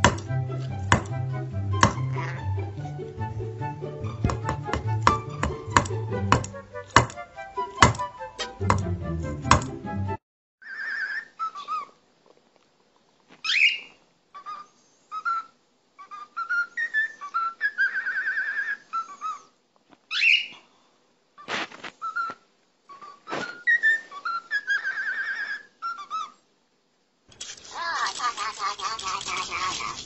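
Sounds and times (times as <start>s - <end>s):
harsh bird sounds: 27.6s - 30.0s.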